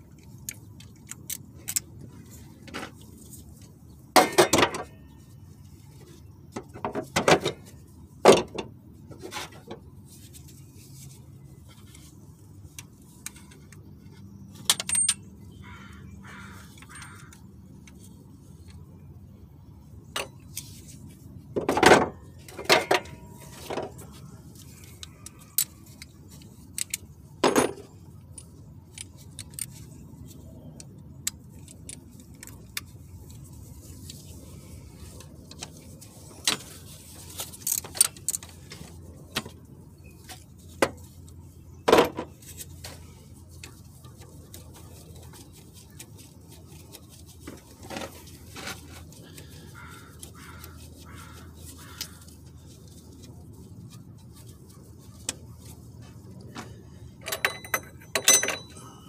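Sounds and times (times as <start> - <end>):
hand tools clanking on metal: 4.2 - 5.0, 57.2 - 59.0.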